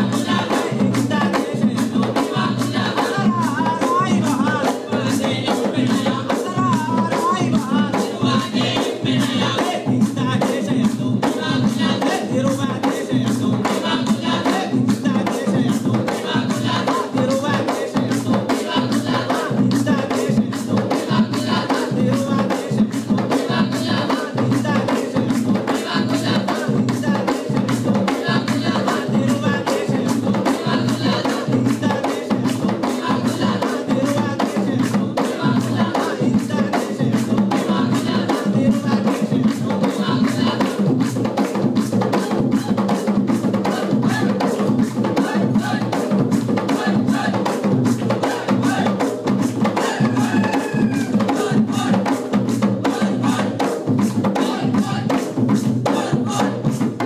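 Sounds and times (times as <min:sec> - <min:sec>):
barrel drums played by hand: 0:00.0 - 0:57.0.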